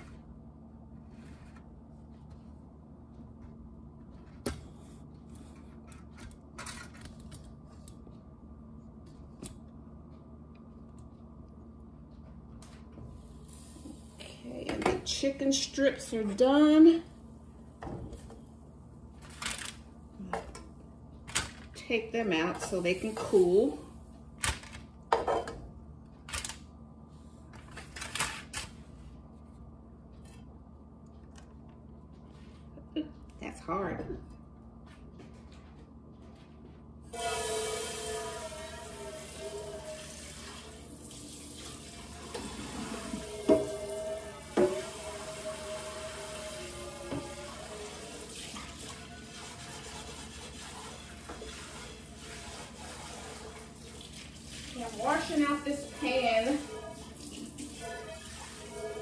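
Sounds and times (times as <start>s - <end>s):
steady low hum: 0.0s - 39.8s.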